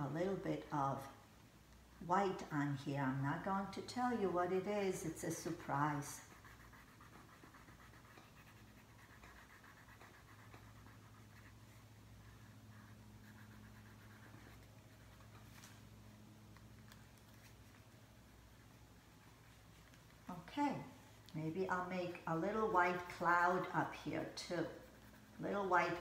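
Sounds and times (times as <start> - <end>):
low steady hum: 0.0 - 26.0
crayon scratching on paper: 5.0 - 15.4, 22.1 - 26.0.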